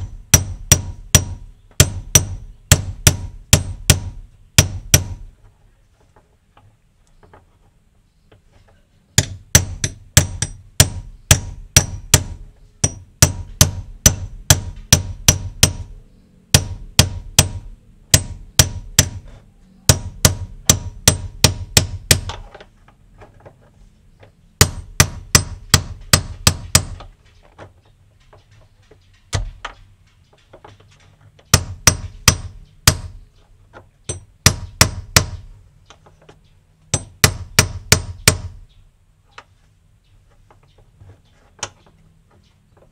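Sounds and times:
hammer tapping steel rod: 9.2s - 15.9s.

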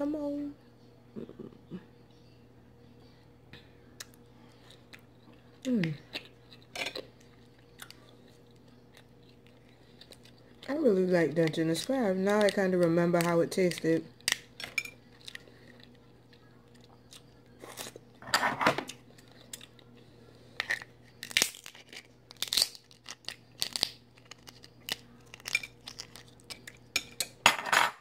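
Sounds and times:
faint steady hum: 0.0s - 28.0s
chewing: 4.0s - 10.8s, 14.2s - 18.2s, 18.9s - 22.1s, 22.8s - 27.0s
crab shell cracking: 14.2s - 14.6s, 20.6s - 26.9s.

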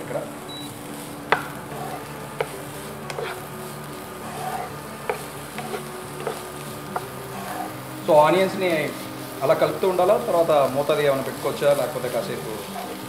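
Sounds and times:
onions sizzling in oil: 0.0s - 13.0s
wooden spatula knocking pan: 1.3s - 3.4s, 4.3s - 7.7s.

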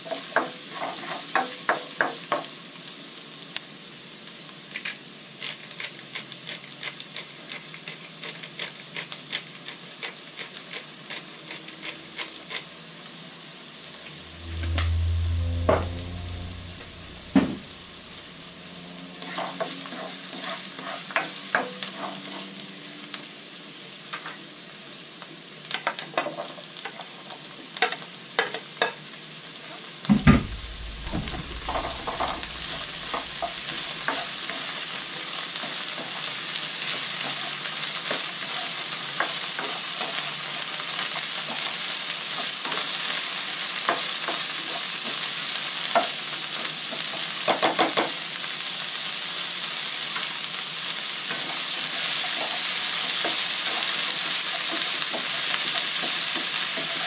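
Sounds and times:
food sizzling in a wok: 0.0s - 5.8s, 30.5s - 57.0s.

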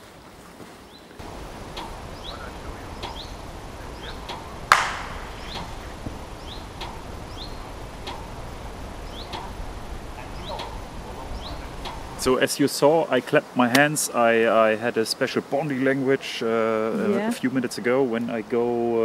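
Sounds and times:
small birds chirping: 0.8s - 12.5s
sharp hand clap: 4.7s - 5.6s.

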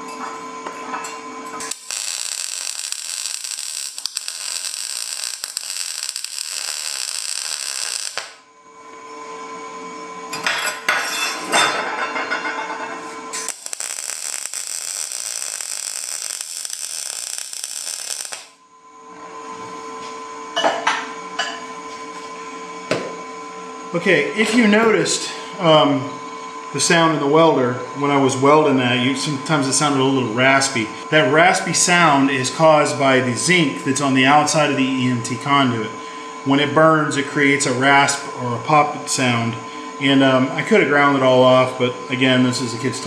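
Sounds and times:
crackling welding arc: 1.6s - 8.5s, 13.3s - 18.6s.

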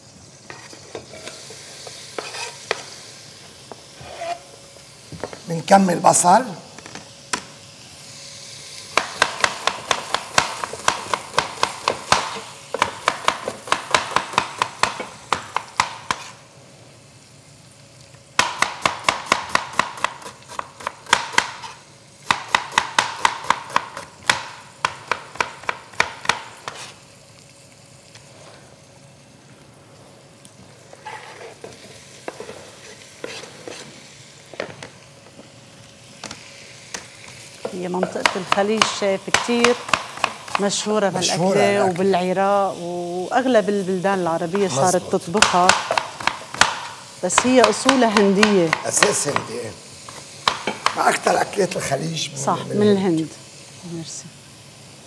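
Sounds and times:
knife slicing on cutting board: 2.2s - 2.8s, 32.3s - 33.9s.

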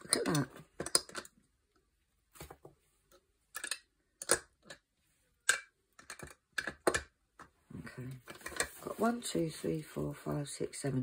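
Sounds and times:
plastic pens clicking in holder: 5.5s - 7.2s.

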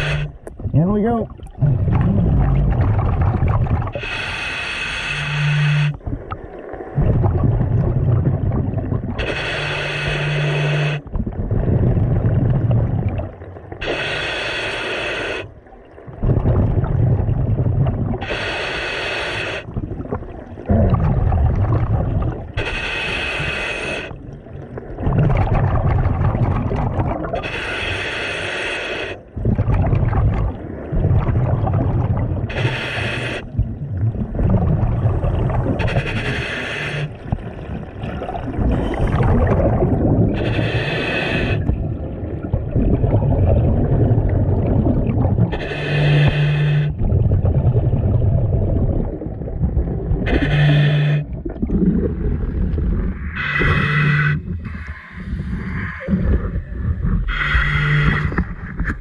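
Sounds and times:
regulator hissing inhale: 0.0s - 0.4s, 4.0s - 6.0s, 9.2s - 11.1s, 13.8s - 15.6s, 18.2s - 19.7s, 22.6s - 24.2s, 27.4s - 29.3s, 32.5s - 33.6s, 35.8s - 37.2s, 40.4s - 41.7s, 45.5s - 47.0s, 50.3s - 51.3s, 53.3s - 56.7s, 57.3s - 58.4s
exhaled bubbles rumbling: 0.0s - 4.5s, 5.2s - 14.0s, 15.5s - 18.6s, 19.4s - 27.5s, 29.2s - 59.0s.

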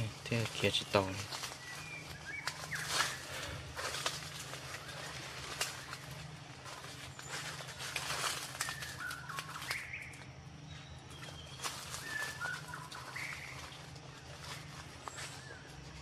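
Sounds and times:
bird chirps: 0.0s - 16.0s
rustling in dry leaf litter: 0.0s - 16.0s.

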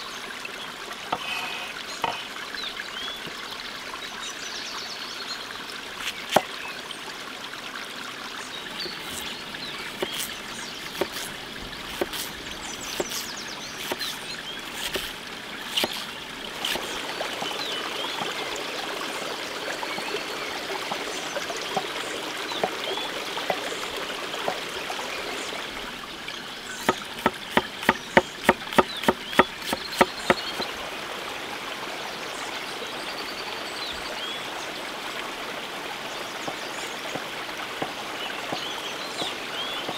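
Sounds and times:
stream running: 0.0s - 39.9s
knife chopping on wooden board: 10.0s - 10.3s, 10.9s - 11.3s, 11.9s - 12.3s, 12.9s - 13.2s, 13.8s - 14.2s, 14.8s - 15.1s, 15.8s - 16.0s, 26.8s - 30.4s.

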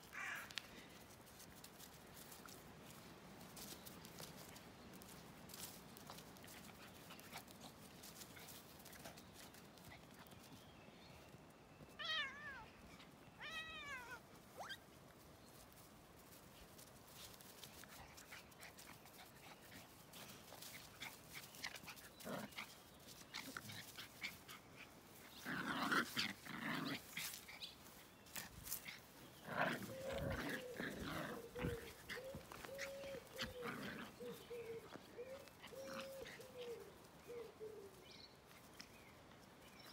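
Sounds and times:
dogs scuffling: 14.1s - 37.2s
dog growls and yaps: 29.4s - 36.9s.

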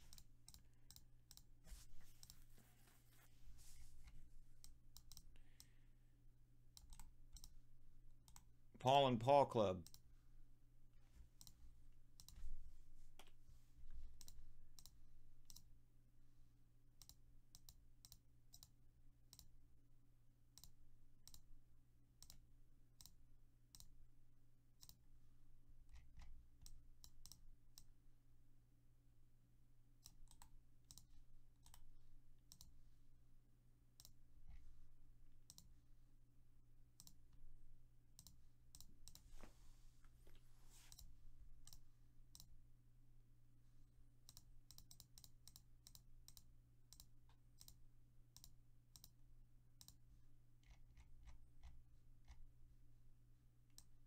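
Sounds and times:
mouse and keyboard clicking: 4.6s - 5.3s.

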